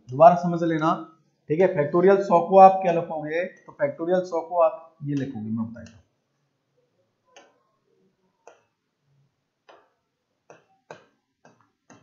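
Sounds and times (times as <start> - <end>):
marker tapping on whiteboard: 10.5 - 12.0.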